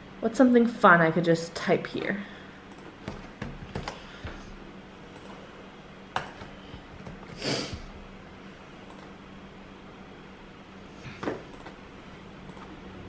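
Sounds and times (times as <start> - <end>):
faint steady hum: 0.0 - 13.0
computer mouse clicks: 5.2 - 5.4, 8.8 - 9.1, 12.4 - 12.8.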